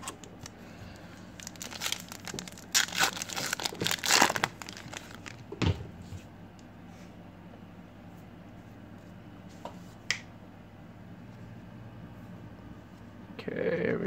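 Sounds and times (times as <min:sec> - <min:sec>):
foil wrapper crinkling and tearing: 0:00.0 - 0:05.5.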